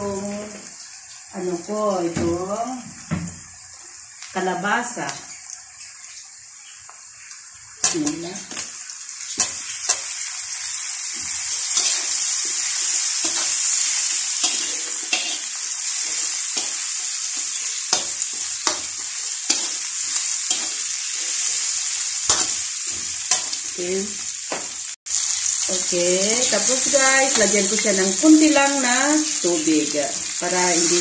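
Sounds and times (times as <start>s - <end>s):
vegetables sizzling in hot oil: 0.0s - 31.0s
metal spatula scraping pan: 11.2s - 21.6s.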